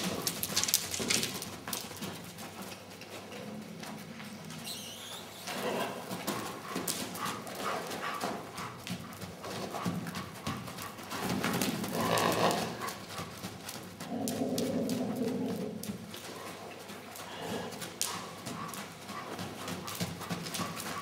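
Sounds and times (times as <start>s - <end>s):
pony hoofbeats trotting: 0.0s - 21.0s.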